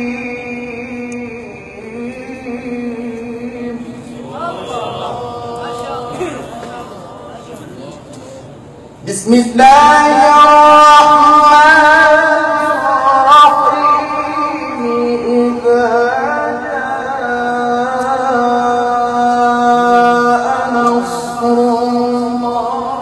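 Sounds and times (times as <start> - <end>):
man chanting melodic recitation: 9.0 - 23.0.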